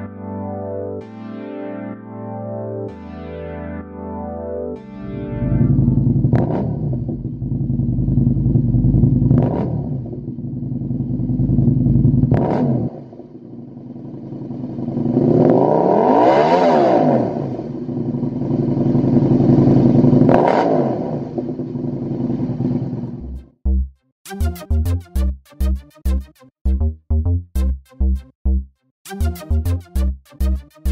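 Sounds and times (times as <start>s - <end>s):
motorcycle engine idling and revving: 5.4s - 23.6s.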